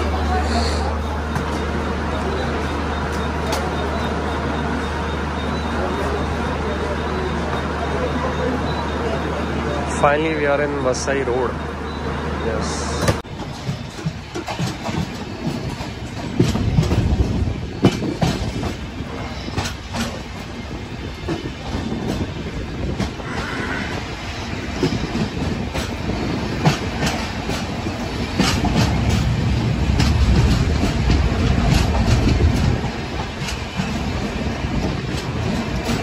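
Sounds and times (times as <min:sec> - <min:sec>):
train rumbling at speed: 0:00.0 - 0:36.0
wheels clacking over rail joints: 0:12.9 - 0:36.0.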